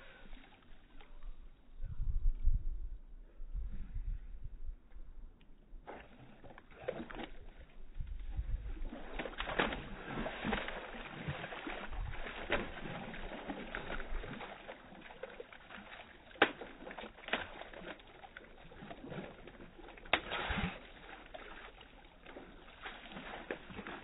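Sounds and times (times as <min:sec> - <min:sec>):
puppy splashing through water: 0:05.8 - 0:24.0.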